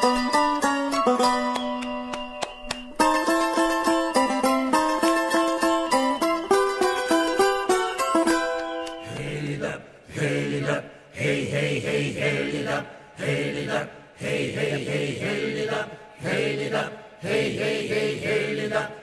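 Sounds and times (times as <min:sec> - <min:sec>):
plucked-string tune: 0:00.0 - 0:09.1
low voices chanting a song: 0:09.0 - 0:19.0.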